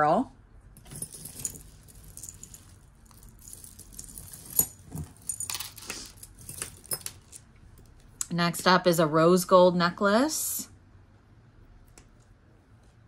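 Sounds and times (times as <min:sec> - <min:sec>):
jewelry jangling and clinking: 0:00.8 - 0:08.1.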